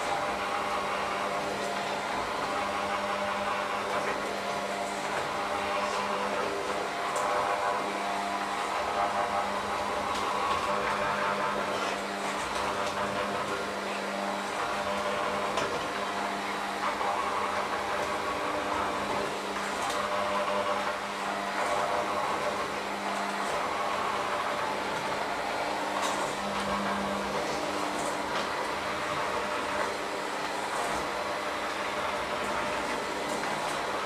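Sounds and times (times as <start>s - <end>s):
electric hand mixer running: 0.0s - 34.0s.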